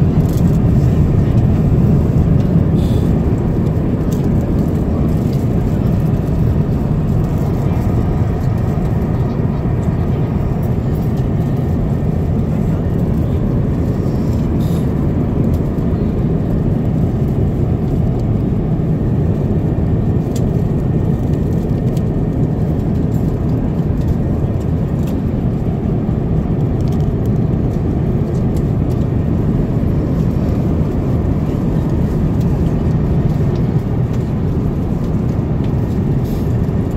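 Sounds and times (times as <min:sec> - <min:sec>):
jet airliner cabin rumble: 0:00.0 - 0:36.9.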